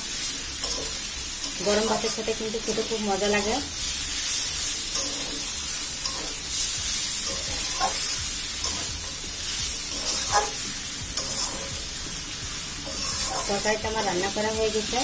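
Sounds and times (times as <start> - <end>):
greens sizzling in oil: 0.0 - 15.0
metal spatula scraping pan: 4.7 - 12.0, 12.8 - 14.4.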